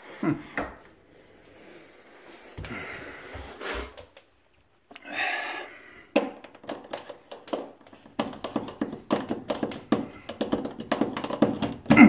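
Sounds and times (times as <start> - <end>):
hand handling noise: 6.1 - 12.0.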